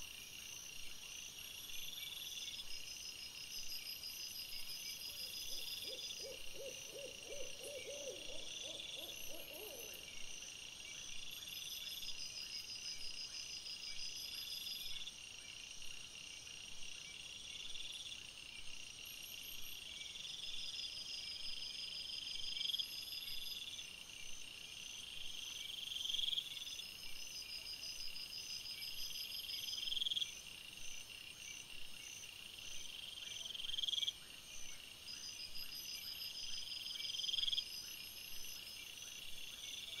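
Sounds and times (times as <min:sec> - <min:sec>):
night insects chirring: 0:00.0 - 0:40.0
owl hooting: 0:05.5 - 0:10.1.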